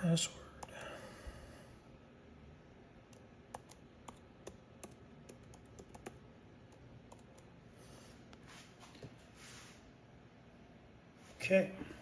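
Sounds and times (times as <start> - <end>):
typing on touchscreen: 3.1 - 7.5.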